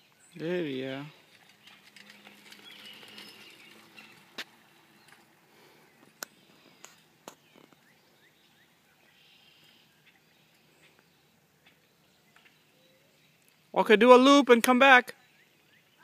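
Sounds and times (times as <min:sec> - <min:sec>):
faint bird chirps: 0:01.2 - 0:13.6.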